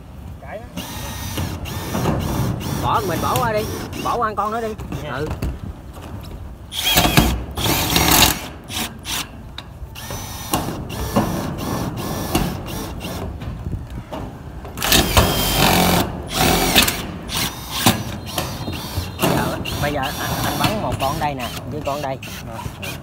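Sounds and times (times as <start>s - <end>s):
drill driving screws into metal: 0.8s - 4.2s, 6.7s - 9.4s, 10.0s - 13.3s, 14.8s - 23.0s.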